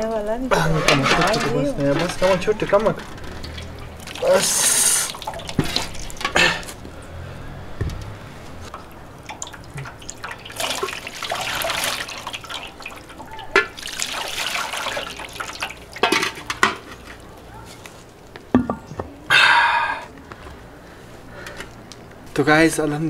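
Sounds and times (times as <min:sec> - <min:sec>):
water splashing into a metal basin: 0:00.8 - 0:06.8, 0:08.7 - 0:17.2.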